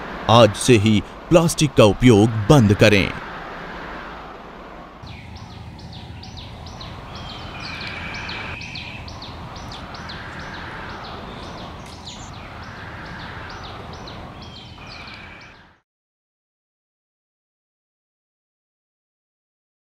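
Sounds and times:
rushing background noise: 0:00.0 - 0:15.8
bird chirping: 0:05.0 - 0:15.8
bird whistle: 0:05.1 - 0:15.6.

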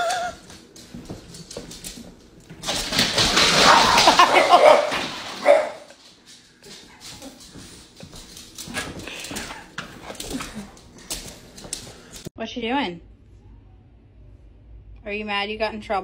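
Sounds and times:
dog barking and whining: 0:00.0 - 0:00.4, 0:03.6 - 0:05.9.

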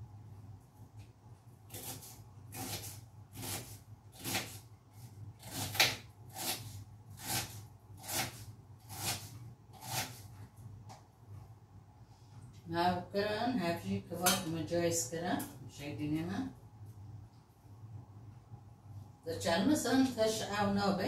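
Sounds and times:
knife chopping on plastic board: 0:05.4 - 0:06.6.

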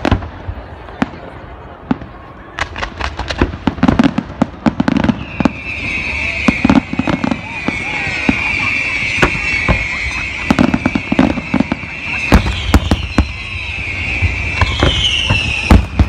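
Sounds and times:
deep fireworks booms: 0:00.0 - 0:16.0
fireworks bangs and crackles: 0:00.0 - 0:16.0.

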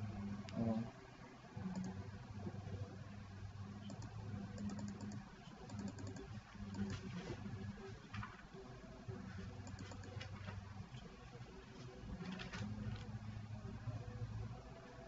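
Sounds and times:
steady low hum: 0:00.0 - 0:15.0
keyboard typing: 0:01.6 - 0:02.0, 0:03.8 - 0:07.4, 0:09.4 - 0:11.1.

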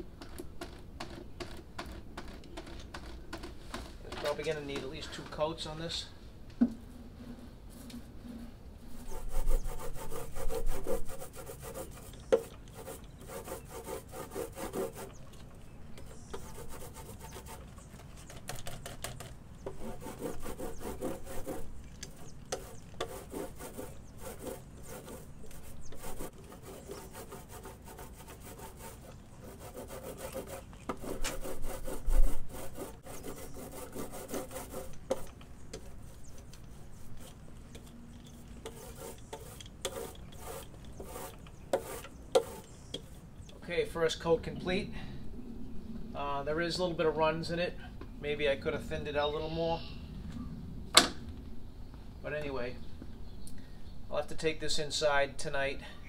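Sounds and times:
paint roller swishing: 0:07.1 - 0:15.2, 0:19.7 - 0:43.1.

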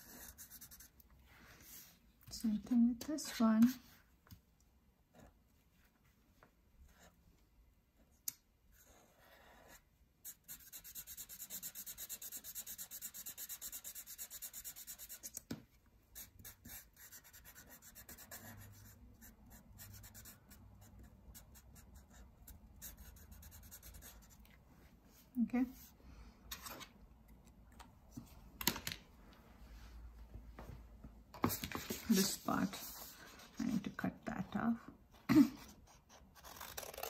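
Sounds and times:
marker scribbling on paper: 0:00.0 - 0:00.9, 0:08.8 - 0:15.4, 0:16.2 - 0:24.4, 0:31.4 - 0:33.9.

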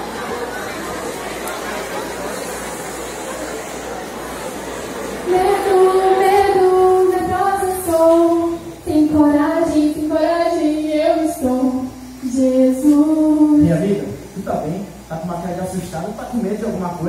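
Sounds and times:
woman singing long notes: 0:05.3 - 0:13.8.

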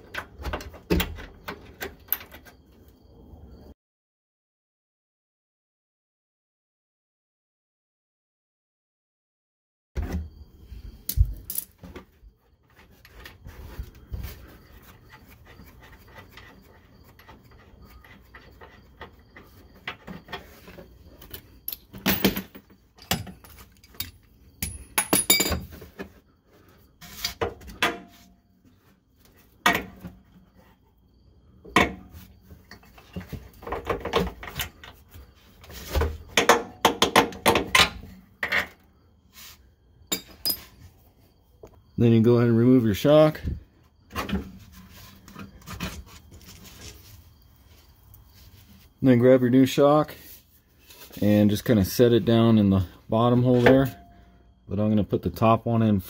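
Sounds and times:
wrench clinking on metal: 0:21.7 - 0:25.6, 0:40.1 - 0:40.8.

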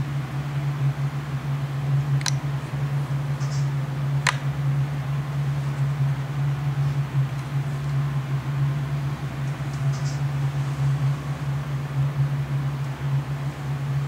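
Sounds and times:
low hum: 0:00.0 - 0:14.0
sharp clicks: 0:02.2 - 0:02.4, 0:03.4 - 0:04.4.

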